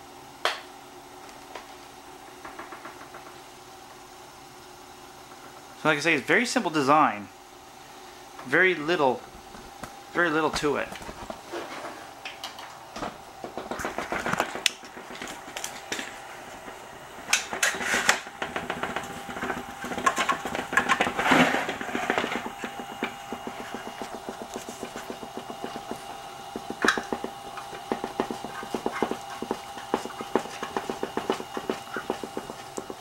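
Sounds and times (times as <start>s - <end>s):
vibration machine humming and rattling: 0.0s - 33.0s
knocks of vibrating platform: 18.4s - 33.0s.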